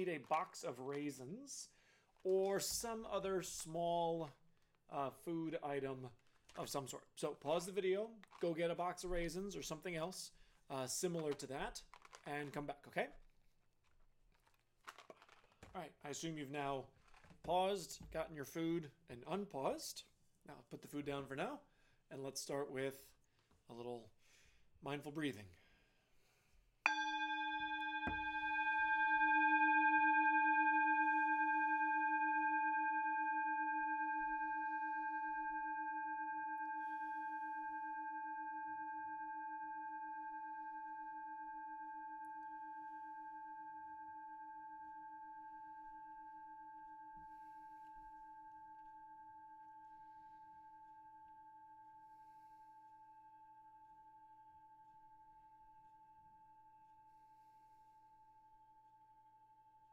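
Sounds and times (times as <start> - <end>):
singing bowl ringing: 26.9 - 59.9.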